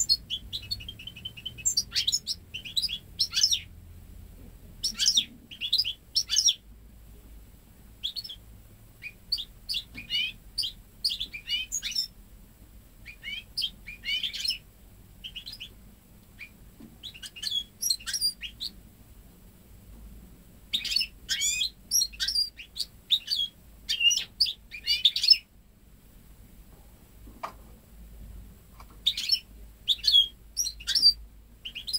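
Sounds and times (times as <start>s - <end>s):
bird twittering song: 0.0s - 3.8s, 4.8s - 6.6s, 8.0s - 8.4s, 9.0s - 12.2s, 13.0s - 15.8s, 16.4s - 18.8s, 20.7s - 25.5s, 29.0s - 31.9s.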